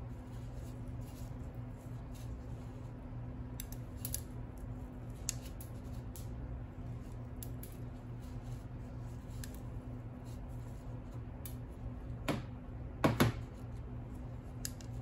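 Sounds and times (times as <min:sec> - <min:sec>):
low machine hum: 0:00.0 - 0:15.0
sharp clicks and snips: 0:14.5 - 0:15.0.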